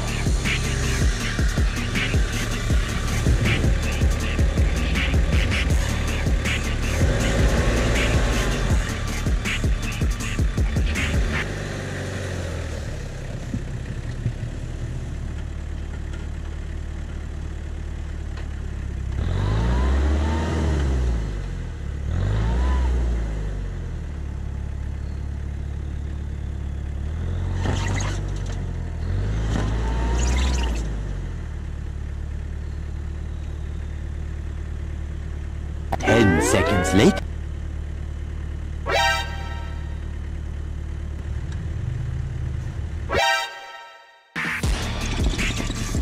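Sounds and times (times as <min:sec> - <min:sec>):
pickup engine revving: 0:00.0 - 0:13.8
tyres spinning in snow: 0:13.3 - 0:16.1.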